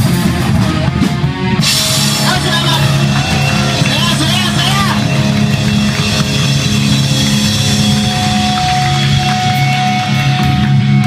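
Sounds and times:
bass guitar: 0.0s - 11.0s
distorted electric guitar: 0.0s - 11.0s
drum kit: 0.0s - 11.0s
steady held high note: 1.7s - 10.1s.

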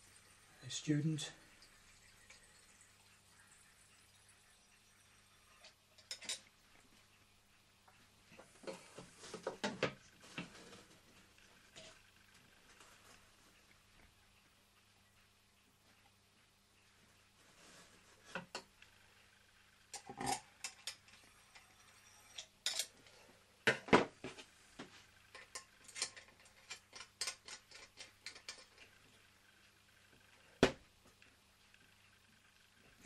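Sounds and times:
small metal clicks and clinks: 5.6s - 6.5s, 25.3s - 28.9s.

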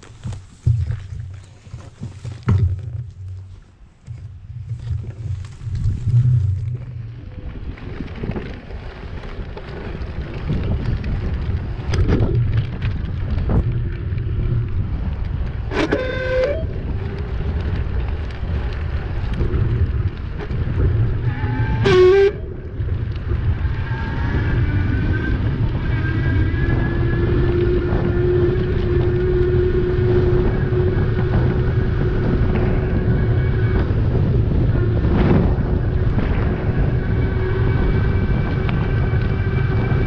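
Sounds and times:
wind buffeting microphone: 0.0s - 40.0s
steady whine: 11.8s - 40.0s.

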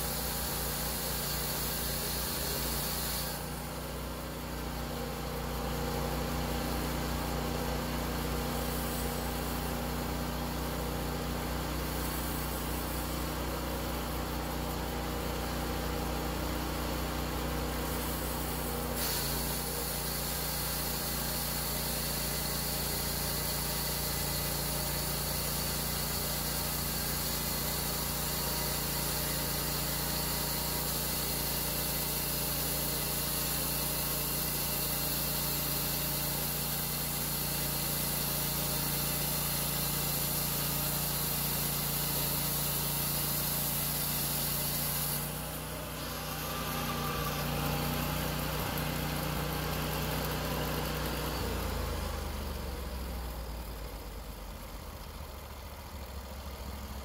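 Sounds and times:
band blade cutting log hiss: 0.0s - 3.8s, 17.8s - 50.4s
sawmill engine humming: 0.0s - 57.0s.

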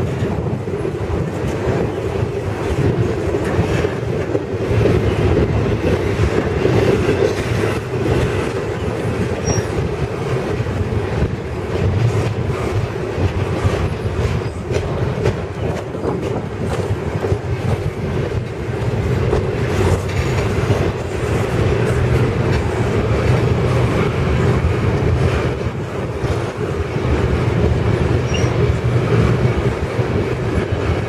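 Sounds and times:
freight train wheels rumbling on rail: 0.0s - 31.0s
wheels clacking over rail joints: 0.0s - 31.0s
high wheel squeak: 8.8s - 9.9s, 28.2s - 28.7s.

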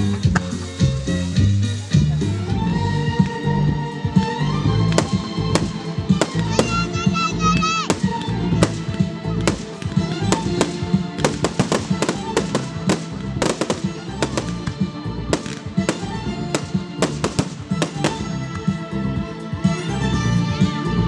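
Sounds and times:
music playing: 0.0s - 21.0s
fireworks bursting and crackling: 4.9s - 18.7s.

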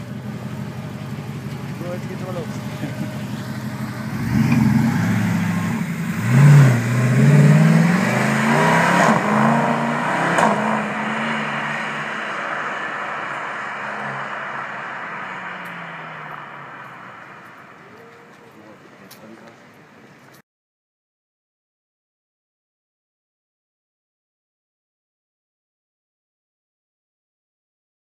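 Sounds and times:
car engine accelerating hard: 0.0s - 18.6s.

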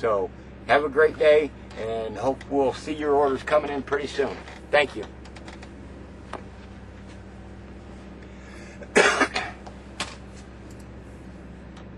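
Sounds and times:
steady low hum: 0.0s - 11.9s
man coughing: 8.7s - 9.6s.

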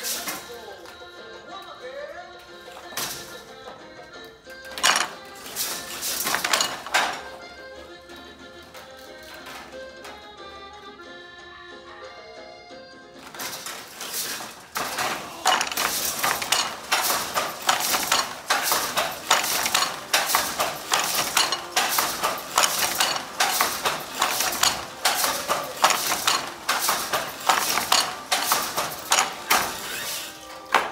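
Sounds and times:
wooden loom clacking: 0.0s - 0.6s, 4.7s - 7.5s, 13.2s - 30.9s.

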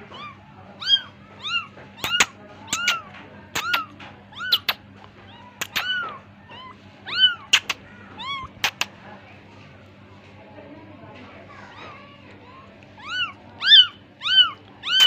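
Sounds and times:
kitten mewing: 0.1s - 8.9s, 13.0s - 15.0s
sharp clicks: 7.5s - 7.8s, 8.6s - 8.9s.

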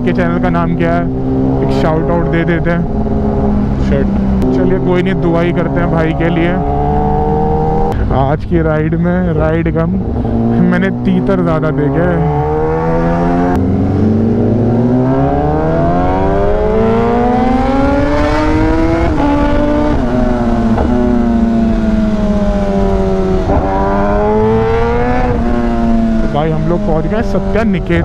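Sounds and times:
motorcycle engine revving: 0.0s - 8.1s, 9.4s - 28.0s
wind noise on microphone: 13.0s - 26.4s.

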